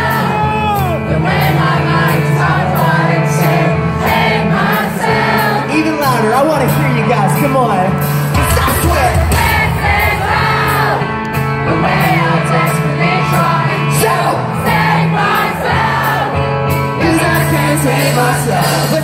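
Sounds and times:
bass guitar: 0.0 - 19.0
distorted electric guitars: 0.0 - 19.0
drums: 0.0 - 19.0
lead singer singing: 0.0 - 19.0.

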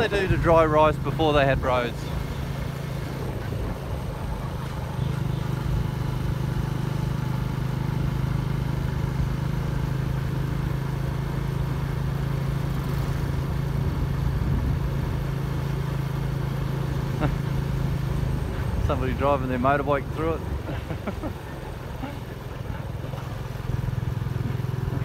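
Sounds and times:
motorbike engine running: 0.0 - 25.0
road noise: 0.0 - 25.0
wind noise: 3.0 - 5.0, 13.7 - 15.2.

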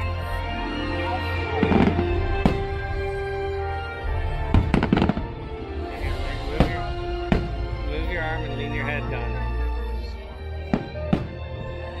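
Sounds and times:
sustained music: 0.0 - 12.0
fireworks bangs: 1.6 - 3.0, 4.3 - 5.4, 6.5 - 7.8.

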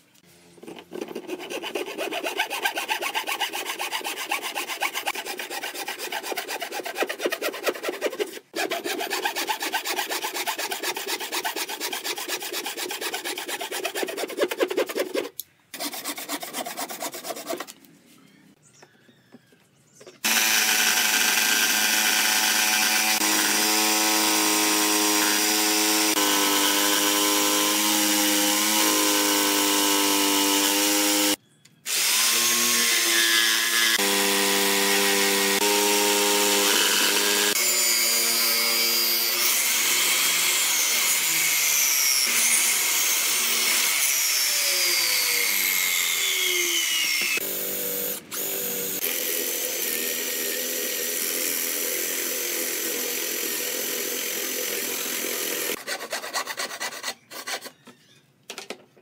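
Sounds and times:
electric jigsaw cutting wood: 20.2 - 55.8
power drill boring into wood: 20.2 - 55.8.

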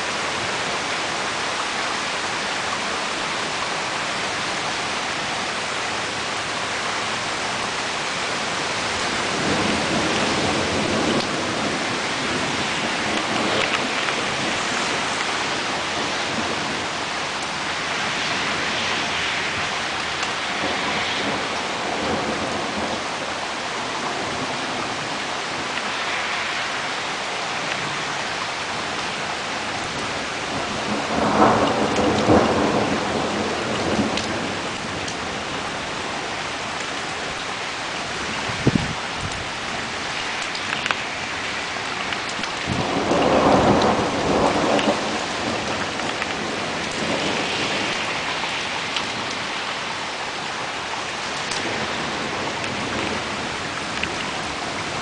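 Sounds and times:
steady rain: 0.0 - 55.0
thunder rumbling: 7.6 - 23.4, 29.8 - 36.4, 38.1 - 39.6, 41.9 - 49.5.

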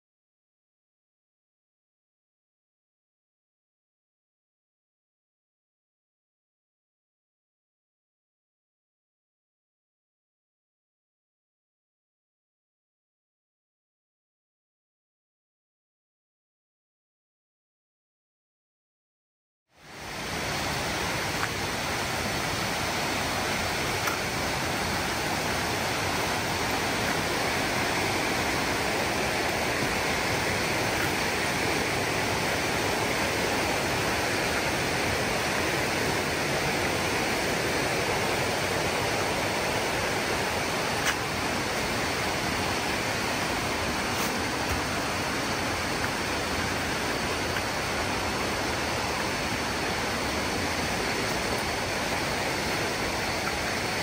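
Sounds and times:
rushing water: 19.8 - 54.0.

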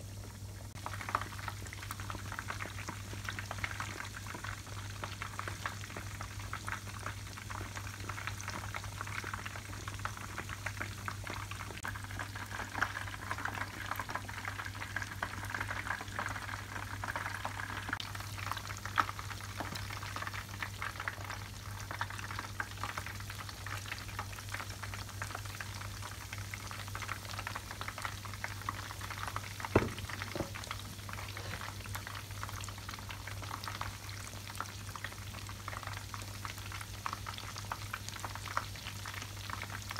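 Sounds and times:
food deep-frying in oil: 0.0 - 39.9
knock: 29.8 - 30.6.

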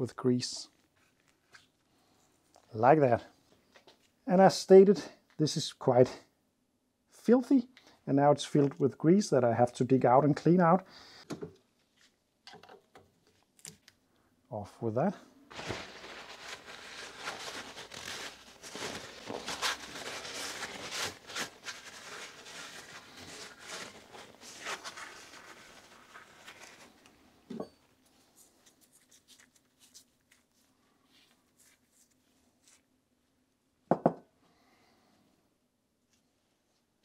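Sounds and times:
paper towel rubbing and crumpling: 15.5 - 27.1, 28.2 - 32.8.

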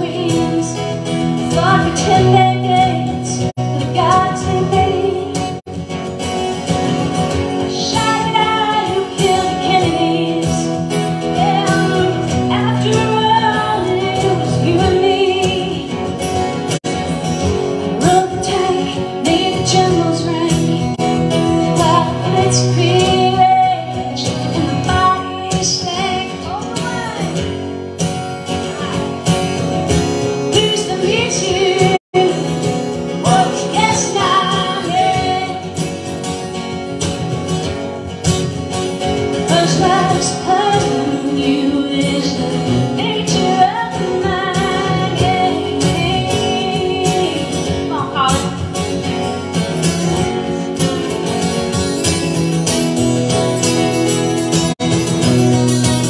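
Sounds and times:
woman singing: 0.0 - 5.6, 7.6 - 16.2, 17.8 - 27.4, 30.5 - 36.0, 39.4 - 48.8
acoustic guitars strumming: 0.0 - 56.0.

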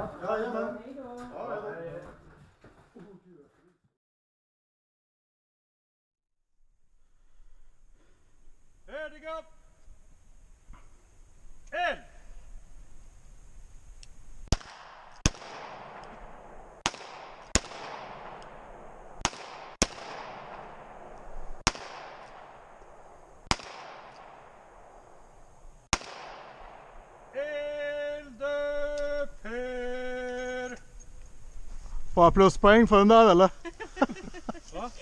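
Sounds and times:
short pitched blasts: 14.4 - 31.0
handgun shots with echo: 14.5 - 22.8, 23.5 - 25.0, 25.9 - 27.1.

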